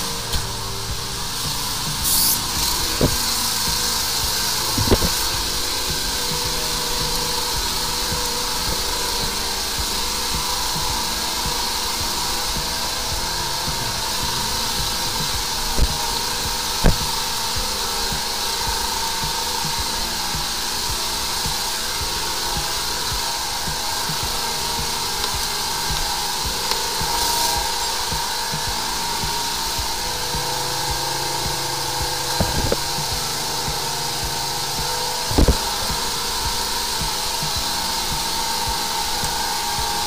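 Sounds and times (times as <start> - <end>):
water jetter hissing: 0.0 - 40.0.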